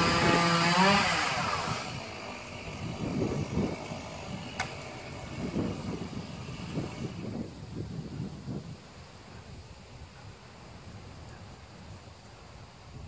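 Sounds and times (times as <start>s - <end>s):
chainsaw running at high revs: 0.0s - 7.4s
wind buffeting microphone: 0.0s - 13.0s
sharp click: 4.6s - 4.8s.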